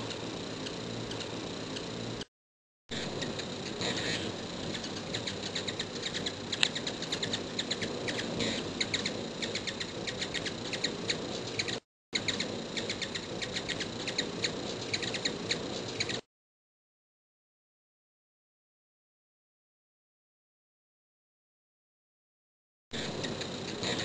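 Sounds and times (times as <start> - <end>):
hummingbirds chipping: 0.0 - 2.2, 2.9 - 16.2, 23.0 - 24.0.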